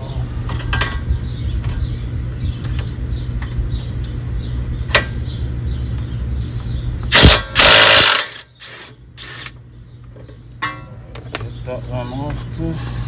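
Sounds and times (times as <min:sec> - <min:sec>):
steady low hum: 0:00.0 - 0:13.0
cordless power tool running: 0:07.1 - 0:09.5.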